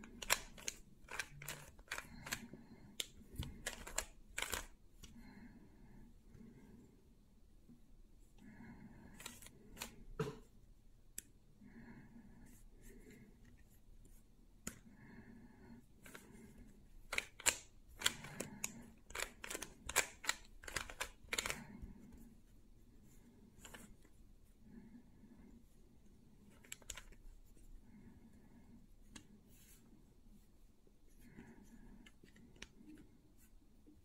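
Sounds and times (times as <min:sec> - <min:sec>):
puzzle cube clicking as twisted: 0:00.0 - 0:04.8, 0:17.0 - 0:21.7, 0:26.5 - 0:27.2.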